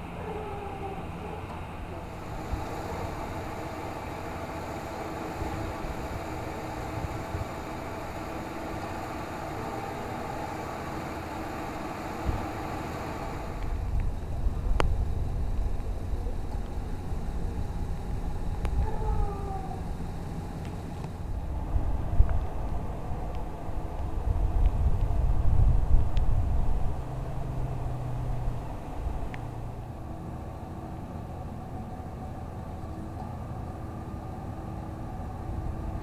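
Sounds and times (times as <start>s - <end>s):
suv engine idling: 0.0s - 25.8s
engine noise: 0.0s - 36.0s.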